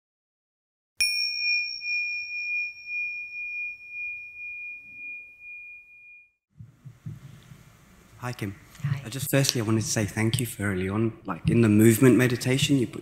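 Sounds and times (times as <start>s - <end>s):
bell-like chime: 1.0s - 6.4s.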